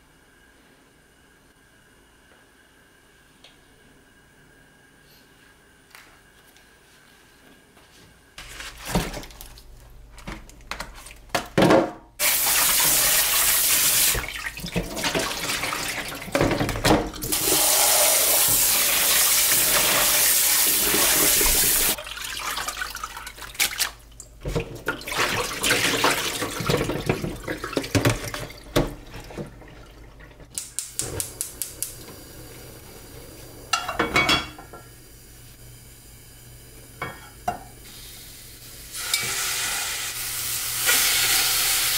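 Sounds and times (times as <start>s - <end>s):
tap water running into sink: 12.2s - 32.3s
colander clattering: 14.0s - 17.6s, 21.3s - 32.0s, 33.7s - 34.9s.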